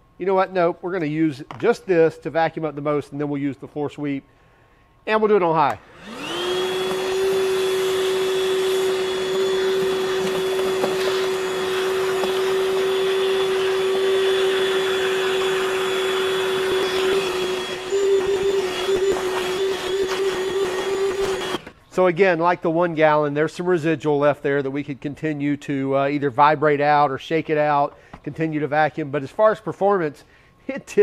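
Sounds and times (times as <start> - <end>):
wet dry vacuum whining: 5.6 - 22.0.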